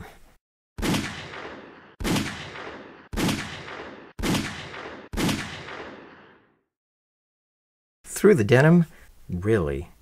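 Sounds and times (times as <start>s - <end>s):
pistol shots with echo: 0.8s - 6.4s.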